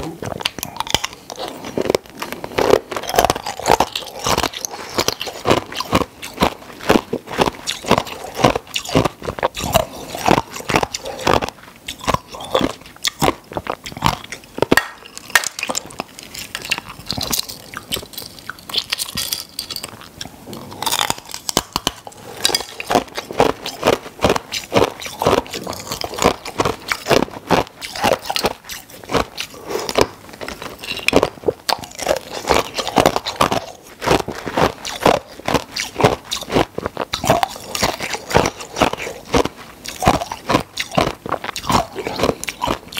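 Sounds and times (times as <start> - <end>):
ice crunching between teeth: 0.0 - 42.9.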